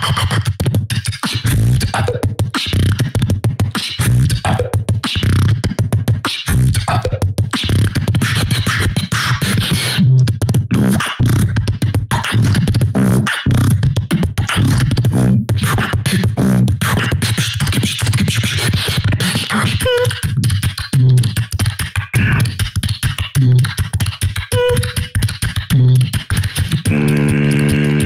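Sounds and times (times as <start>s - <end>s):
beatboxing: 0.0s - 28.0s
whistle-like notes: 24.5s - 25.1s
buzzing bass tone: 24.5s - 26.1s, 26.8s - 28.0s.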